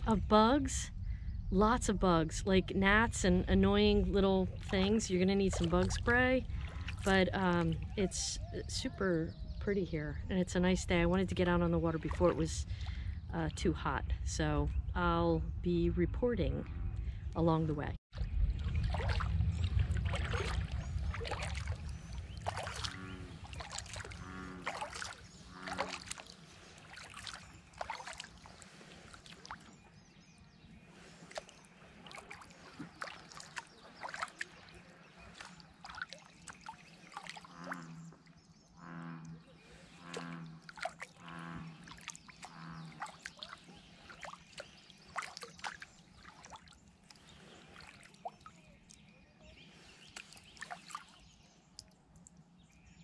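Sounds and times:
small water splashes: 3.2 - 8.7, 10.9 - 13.2, 18.1 - 53.0
water dripping off paddle: 4.5 - 8.0, 18.2 - 29.8, 31.0 - 38.4, 39.1 - 52.4
low pulsing call: 19.5 - 27.8, 37.4 - 43.1.

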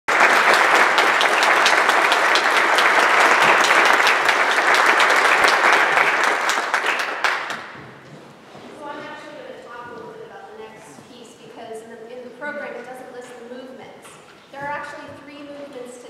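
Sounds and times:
audience applauding: 0.1 - 7.9.

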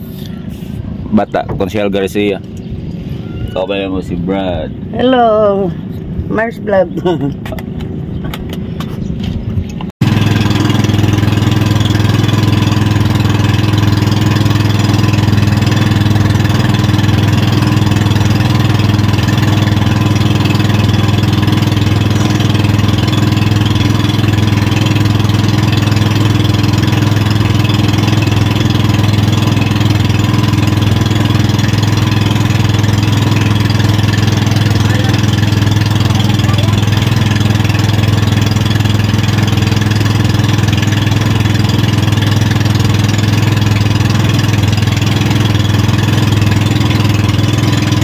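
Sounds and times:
boat engine droning: 10.0 - 48.0.

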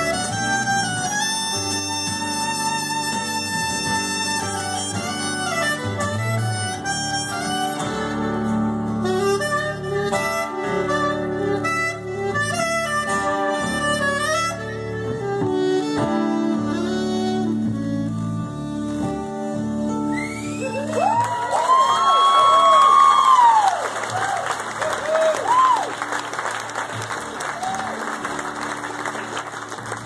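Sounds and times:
strummed acoustic guitars: 0.0 - 20.6, 25.6 - 30.0
soprano saxophone melody: 0.0 - 21.3.

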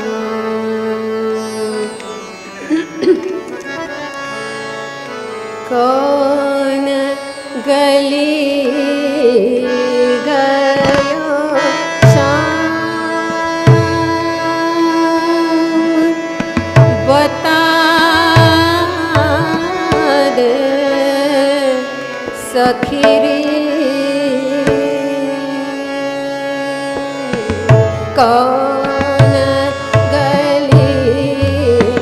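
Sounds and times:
woman singing: 0.0 - 2.1, 5.6 - 32.0
harmonium tones: 0.0 - 32.0
tabla strokes: 10.7 - 11.3, 12.0 - 14.5, 16.4 - 21.6, 22.2 - 25.1, 26.8 - 32.0.

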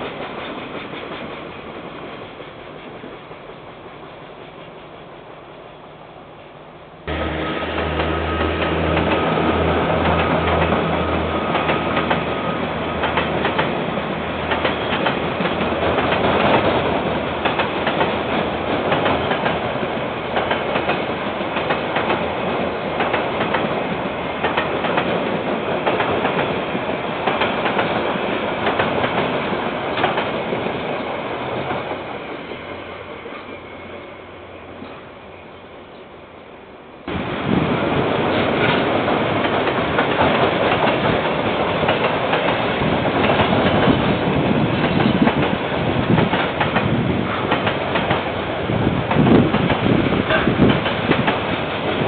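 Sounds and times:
train wagons rolling on rails: 0.0 - 5.7, 7.0 - 36.1, 37.0 - 52.0
locomotive engine hum: 0.0 - 24.8.

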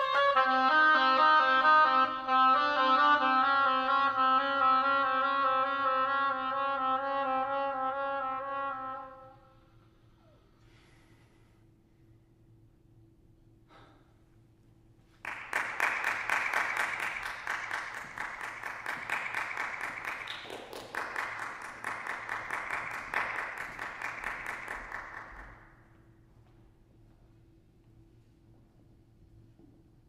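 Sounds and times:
audience applause: 15.2 - 25.6.

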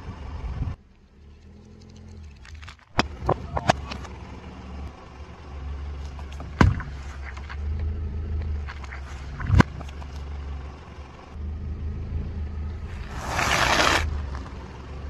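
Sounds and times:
car engine running low: 0.0 - 15.0
drink carton bursting under tyre: 13.0 - 14.1.

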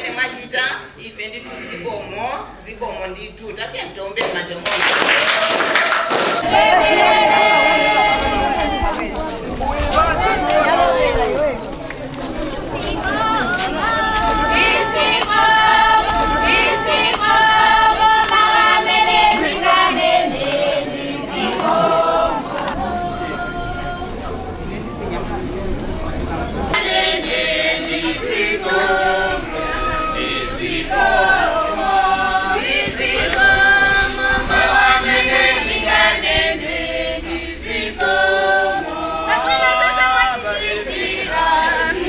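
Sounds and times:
group of voices singing: 6.3 - 11.6, 12.7 - 24.9, 26.7 - 42.0.

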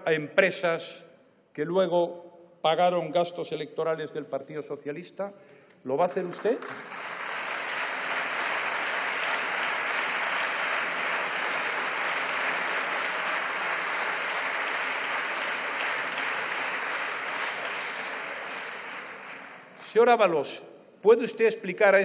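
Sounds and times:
crowd applauding: 6.2 - 20.0.

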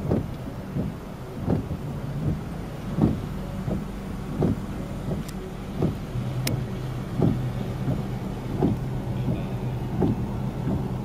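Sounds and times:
vehicle engine humming: 0.0 - 11.0
short low thump: 3.0 - 10.9.

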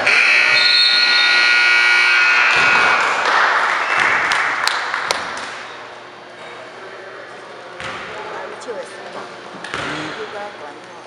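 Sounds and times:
scoreboard horn: 0.0 - 3.1
people clapping: 2.5 - 5.6.

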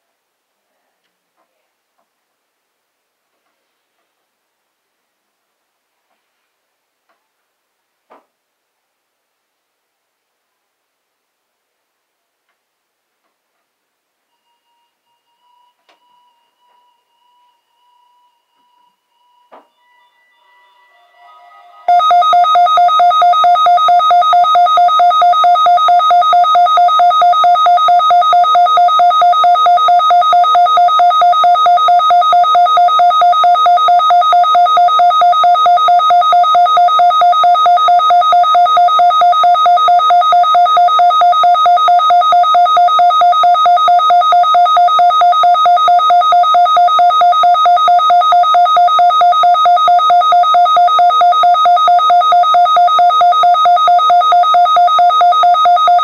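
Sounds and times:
pulsing electronic alert beep: 14.4 - 56.0.

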